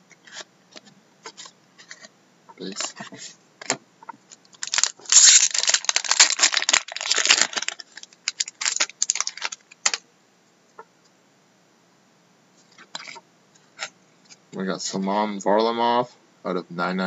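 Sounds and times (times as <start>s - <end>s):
foil wrapper tearing and crinkling: 4.6s - 10.0s.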